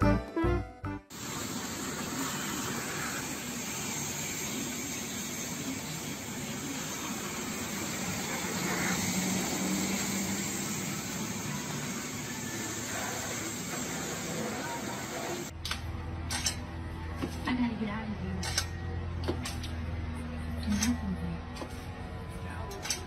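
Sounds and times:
water spraying: 0:01.1 - 0:15.5.

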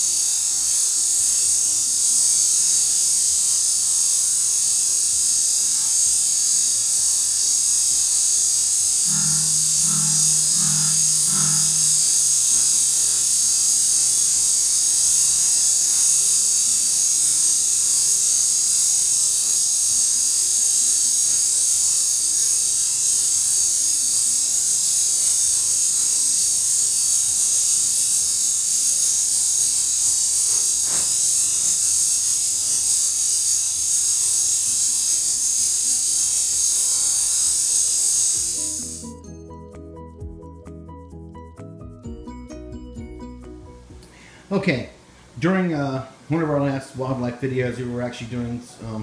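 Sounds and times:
rattlesnake rattling: 0:00.0 - 0:39.2.

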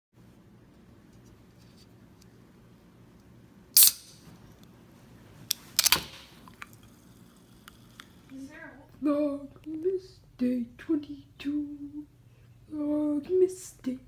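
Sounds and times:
soda can snapping open: 0:03.8 - 0:04.2.

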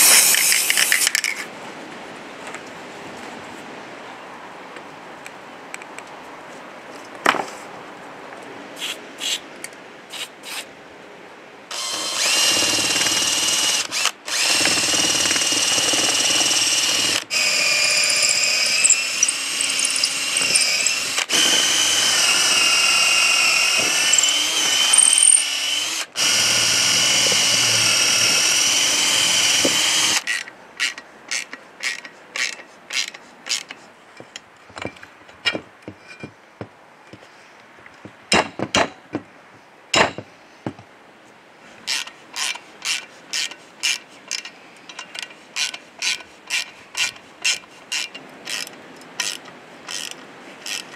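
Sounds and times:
power drill boring into wood: 0:11.7 - 0:30.4, 0:41.9 - 0:44.0, 0:45.6 - 0:50.9
handling clicks and knocks: 0:32.0 - 0:36.4.

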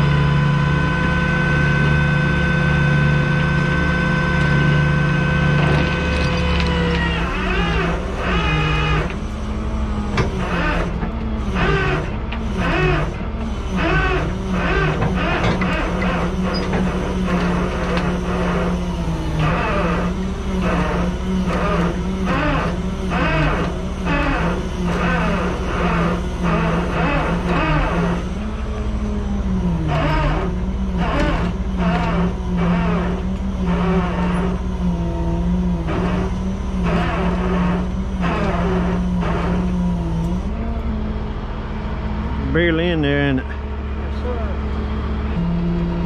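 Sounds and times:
tow truck engine running: 0:00.0 - 0:46.0
winch whine: 0:00.0 - 0:46.0.

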